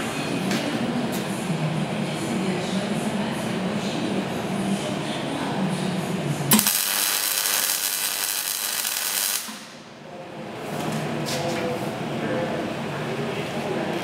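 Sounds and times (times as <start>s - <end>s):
welding arc crackling: 6.5s - 9.8s.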